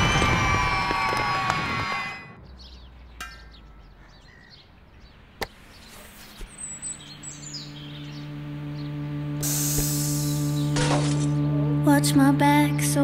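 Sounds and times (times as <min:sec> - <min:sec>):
low held musical tones: 0:06.5 - 0:13.0
film soundtrack music: 0:06.7 - 0:13.0.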